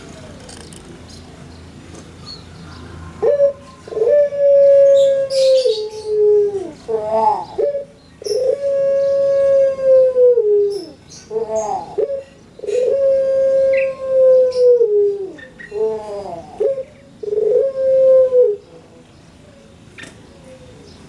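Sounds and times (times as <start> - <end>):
dove cooing: 2.9 - 18.8.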